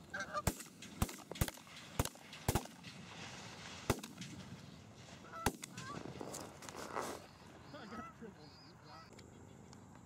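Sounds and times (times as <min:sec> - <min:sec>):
geese honking: 0:00.0 - 0:00.5, 0:05.2 - 0:06.3, 0:07.2 - 0:09.7
shotgun blasts: 0:00.4 - 0:04.6, 0:05.4 - 0:06.2.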